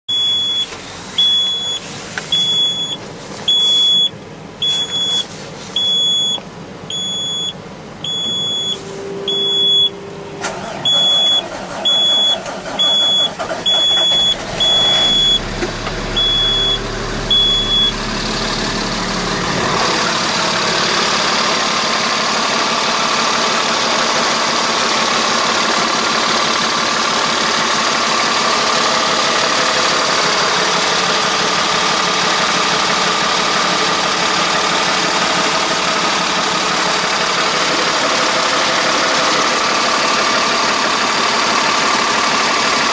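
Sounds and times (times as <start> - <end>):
dashboard warning beeper: 0.1 - 20.1
diesel engine cranking and idling: 0.1 - 42.9.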